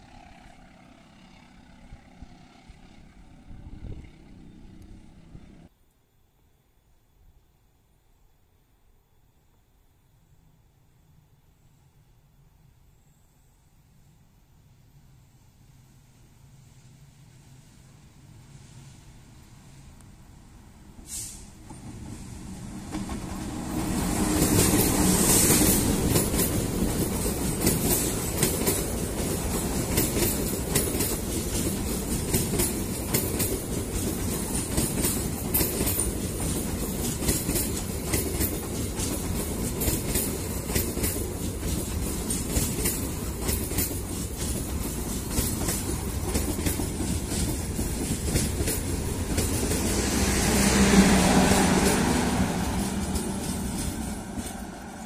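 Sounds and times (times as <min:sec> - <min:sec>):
diesel locomotive passing: 0:00.0 - 0:05.7, 0:14.8 - 0:55.0
wheels clicking over rail joints: 0:21.6 - 0:50.0, 0:51.8 - 0:55.0.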